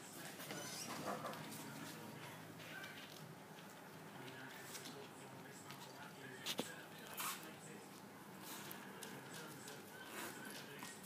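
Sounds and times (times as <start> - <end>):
dogs scuffling: 0.0 - 11.0
faint high squeaks: 0.5 - 1.3.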